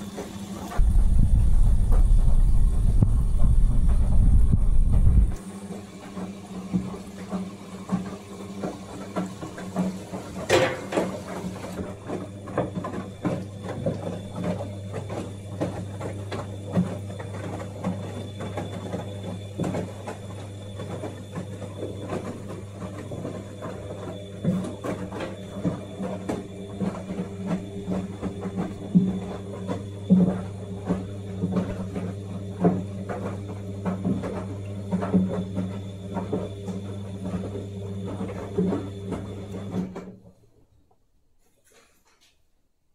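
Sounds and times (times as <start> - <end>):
washer-dryer humming: 0.0 - 42.4.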